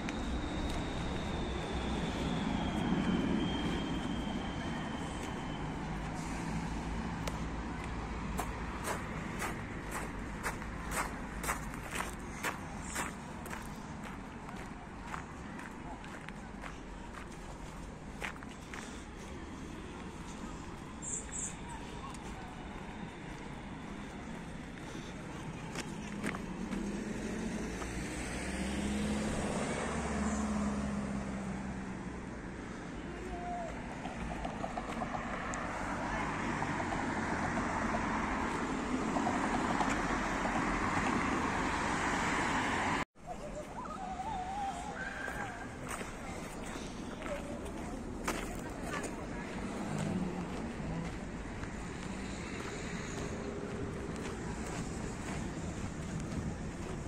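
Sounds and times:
vehicle passing rumble: 0.0 - 57.0
van driving past: 26.5 - 32.6.

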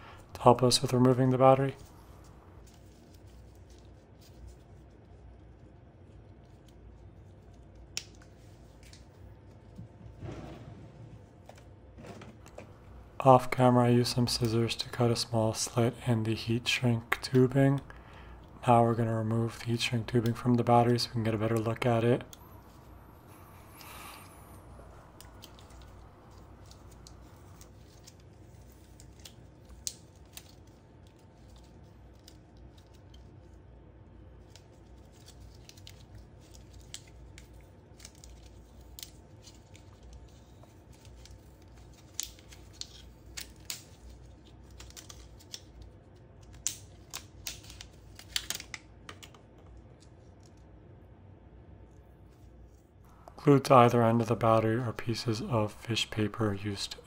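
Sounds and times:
plastic tubing crackling: 23.7 - 33.4, 34.4 - 49.4.

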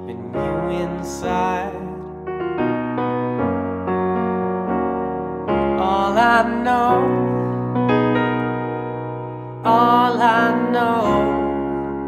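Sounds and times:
person singing wordless phrase: 0.0 - 2.0, 5.8 - 7.6, 9.7 - 11.6
digital piano slow chords: 0.0 - 12.0.

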